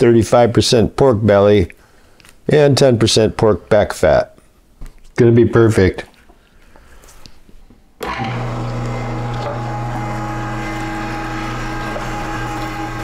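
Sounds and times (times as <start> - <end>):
electric meat grinder humming: 8.0 - 13.0.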